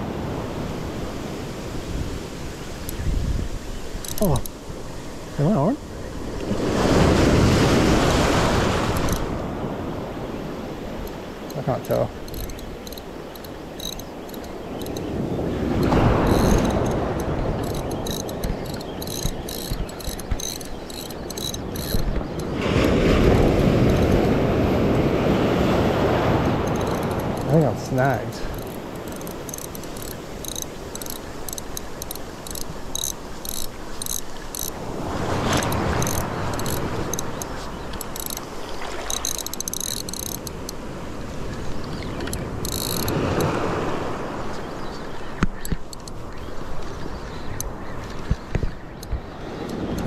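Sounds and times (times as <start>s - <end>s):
shallow surf washing: 0.0s - 50.0s
fishing reel ticking: 2.8s - 3.0s, 3.9s - 4.6s, 8.9s - 9.3s, 11.8s - 15.1s, 15.8s - 22.5s, 23.3s - 24.2s, 26.6s - 27.6s, 28.4s - 34.8s, 35.5s - 40.8s, 42.2s - 43.5s, 45.6s - 46.2s.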